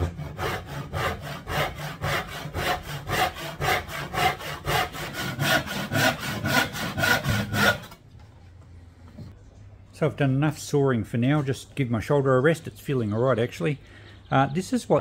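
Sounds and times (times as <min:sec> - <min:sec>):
handsaw cutting wood: 0:00.0 - 0:08.0.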